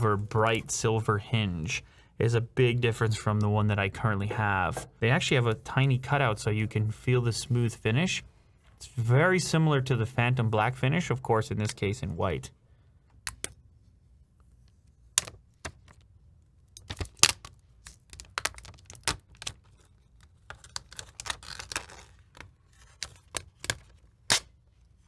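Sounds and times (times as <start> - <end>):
protective film peeling: 16.8 - 24.6.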